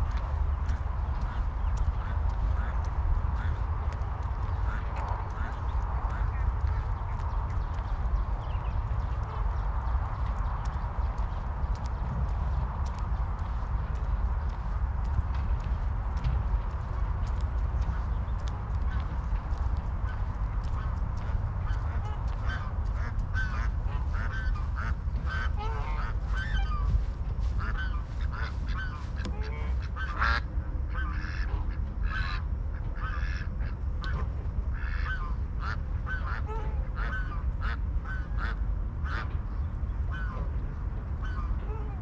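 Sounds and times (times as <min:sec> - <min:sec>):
steady low rumble: 0:00.0 - 0:42.0.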